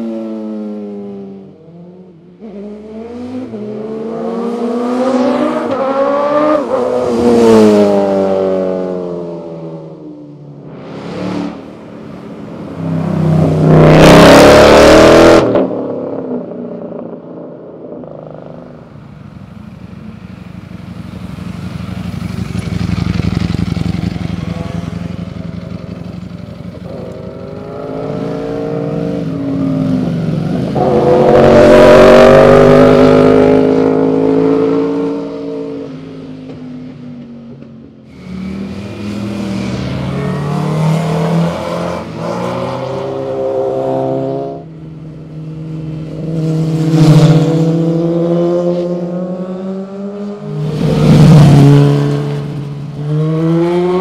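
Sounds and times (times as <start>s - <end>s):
cars passing: 0.0s - 54.0s
engine revving: 12.8s - 15.8s, 26.8s - 35.9s, 38.1s - 44.7s, 45.6s - 54.0s
motorcycles passing: 18.5s - 54.0s.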